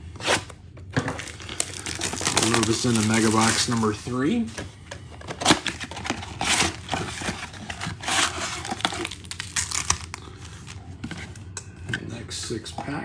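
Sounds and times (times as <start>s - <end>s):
cardboard box tearing: 5.2s - 10.2s.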